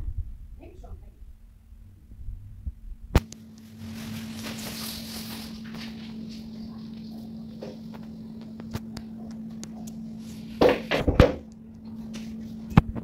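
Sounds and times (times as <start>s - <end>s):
steady low hum: 0.0s - 13.0s
loud thumps and knocks: 10.6s - 11.5s.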